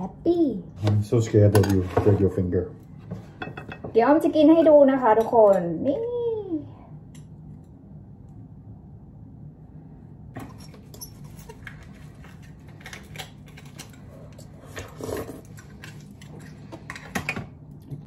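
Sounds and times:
slurping and chewing: 13.9 - 16.9.

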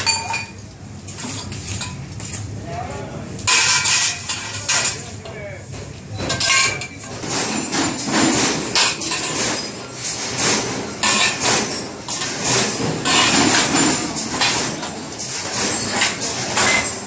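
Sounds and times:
metal pipe clanking and rattling: 3.4 - 17.0.

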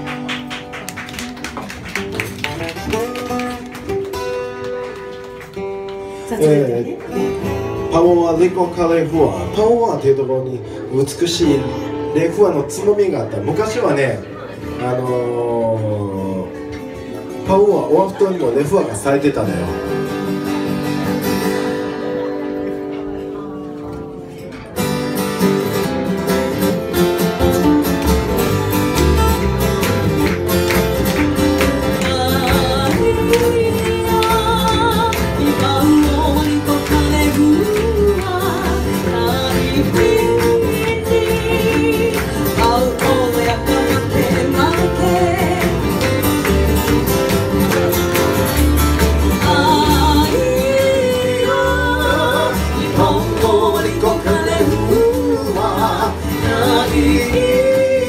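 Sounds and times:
strummed acoustic guitars: 0.0 - 58.0
person singing: 31.6 - 46.4, 49.2 - 58.0.

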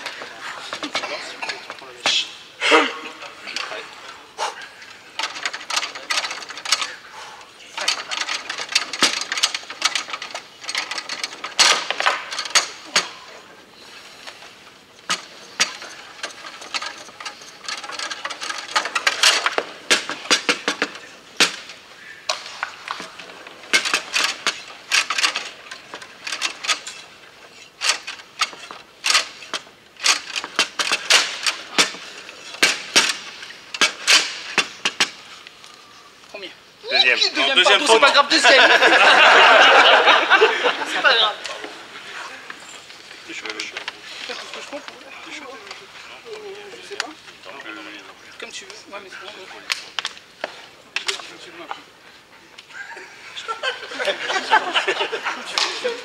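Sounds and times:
foosball rods rattling: 3.2 - 35.6, 42.4 - 51.9
foosball ball clacks: 15.0 - 27.2.

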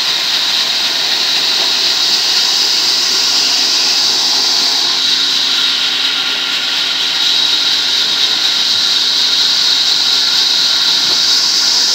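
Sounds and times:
band saw cutting wood: 0.0 - 11.9.

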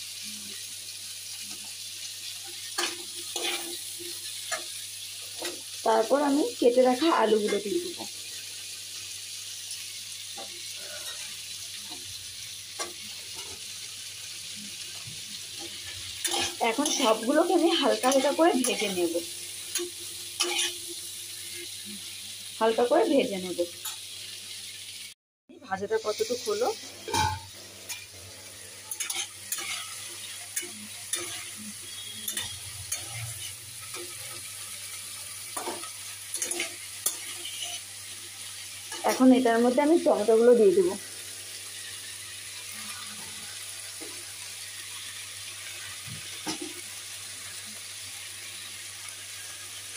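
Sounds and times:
vegetables sizzling in a wok: 0.0 - 49.9
spatula scraping pan: 2.6 - 4.7, 15.6 - 19.1, 19.7 - 20.8, 26.8 - 37.9.

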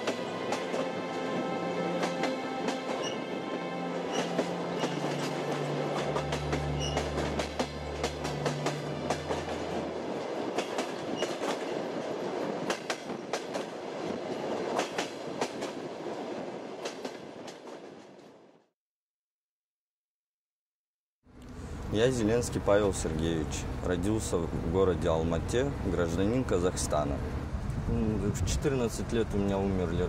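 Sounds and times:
train rumbling on rails: 0.0 - 18.6, 21.5 - 30.0
wheels clicking over rail joints: 6.2 - 18.2.

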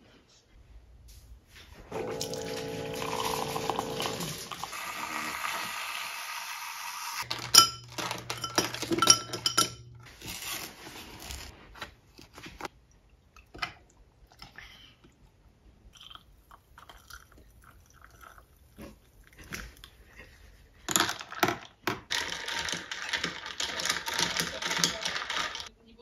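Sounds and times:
ice cubes clinking into glass: 2.0 - 4.7, 7.2 - 9.9, 22.1 - 25.7
milk pouring over ice: 2.0 - 6.5, 16.0 - 18.7
spoon stirring in glass cup: 7.2 - 10.1, 22.1 - 25.7.

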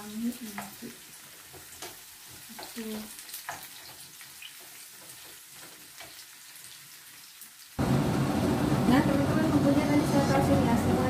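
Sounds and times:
onions sizzling in oil: 0.0 - 9.4
loud dense noise: 7.8 - 11.0.

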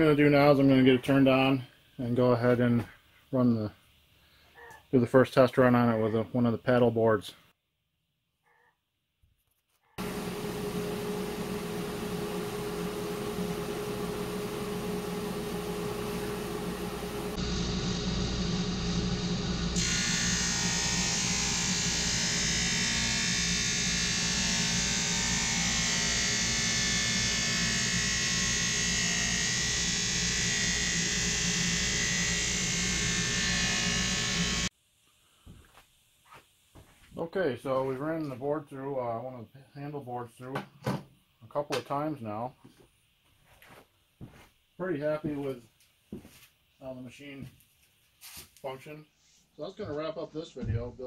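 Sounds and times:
drum sander running: 10.0 - 34.7.

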